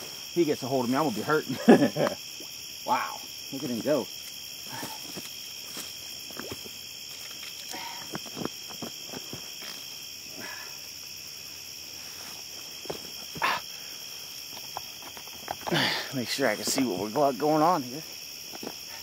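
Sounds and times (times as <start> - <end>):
crickets and insects trilling: 0.0 - 19.0
handling knocks and rustles: 12.2 - 13.4.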